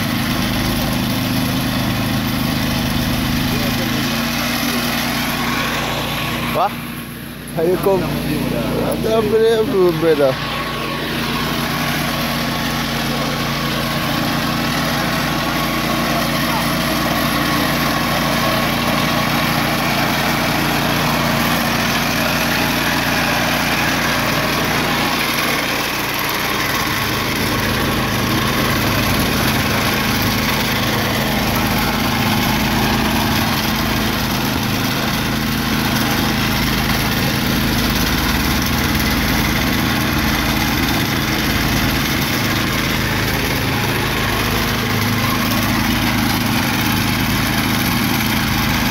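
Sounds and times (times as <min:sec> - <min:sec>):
small gasoline engine running: 0:00.0 - 0:48.9.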